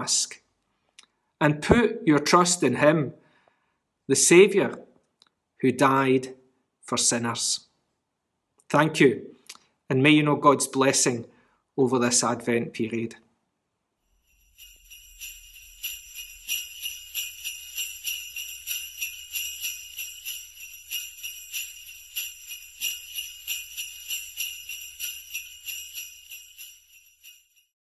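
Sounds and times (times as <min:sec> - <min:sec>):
sleigh bells jingling: 0:14.1 - 0:27.7.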